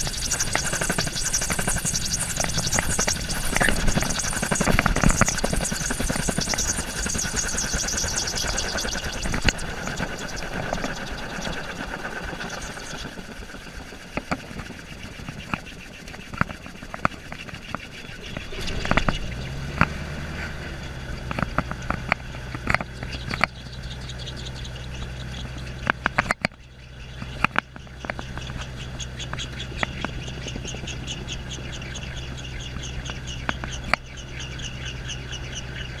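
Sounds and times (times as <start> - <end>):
high-pitched squeaks: 0.0 - 19.6
clicks and rattles: 0.0 - 20.0, 21.2 - 23.7, 24.3 - 34.2
gyrocopter engine idling: 0.0 - 36.0.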